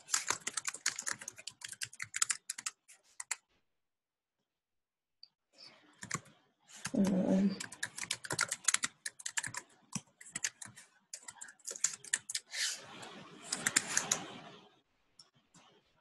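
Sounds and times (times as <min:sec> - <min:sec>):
typing on a keyboard: 0:00.0 - 0:03.4, 0:06.0 - 0:12.5, 0:13.5 - 0:14.3.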